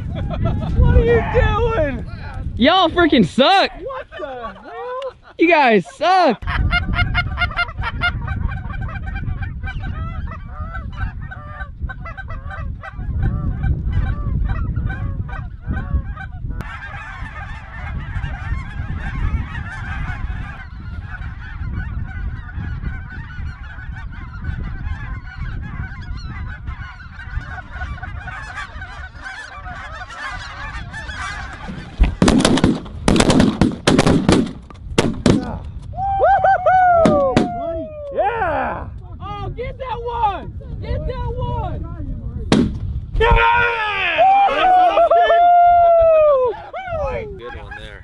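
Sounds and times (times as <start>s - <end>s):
geese honking: 3.1s - 33.4s, 46.5s - 48.0s
shotgun blasts: 32.2s - 35.5s, 42.5s - 42.8s.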